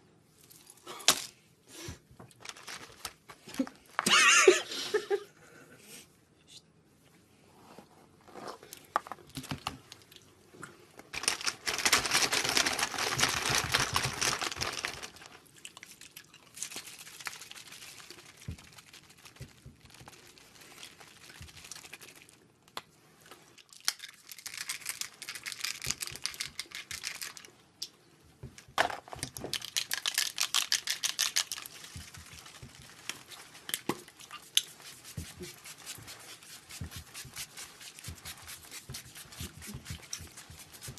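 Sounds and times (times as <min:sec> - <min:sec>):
packaging rustling and crinkling: 0:02.3 - 0:03.8, 0:11.1 - 0:15.5, 0:16.6 - 0:22.4, 0:23.9 - 0:27.5, 0:28.6 - 0:40.9.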